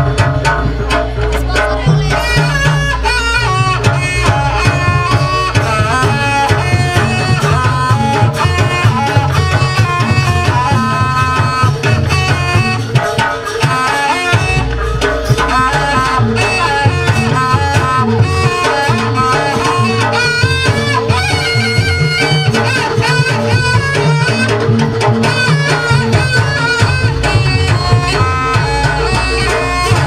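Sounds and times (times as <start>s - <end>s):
continuous drumming: 0.0s - 30.0s
reedy shawm melody: 0.0s - 30.0s.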